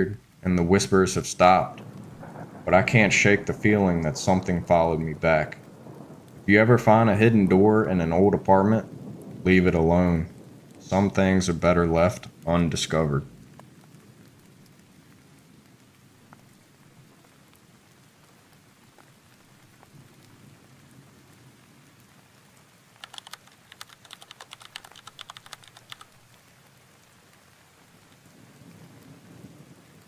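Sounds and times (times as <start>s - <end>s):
rapid crackly ticking: 0.0s - 15.2s, 22.9s - 28.7s
steady rain: 0.0s - 30.0s.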